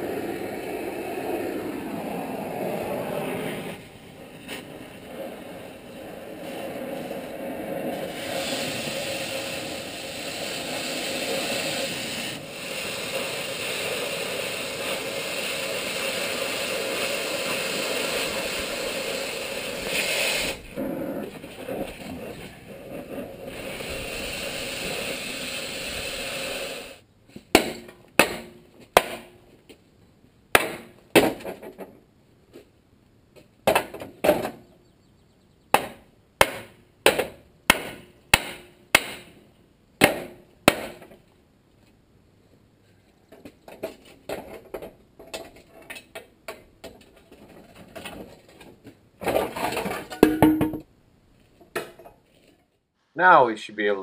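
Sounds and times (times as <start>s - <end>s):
cutting torch hissing: 8.0s - 20.7s, 23.5s - 27.0s.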